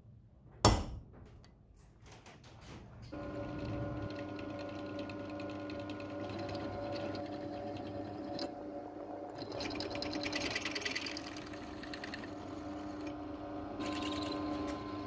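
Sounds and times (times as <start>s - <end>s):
spindle motor humming: 3.1s - 15.0s
drill bit cutting brass: 3.2s - 8.5s, 13.8s - 15.0s.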